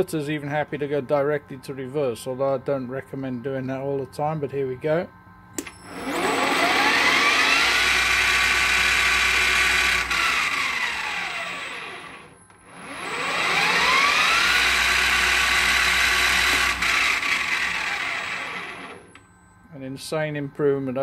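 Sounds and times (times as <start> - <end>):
lathe motor whine: 5.6 - 19.2.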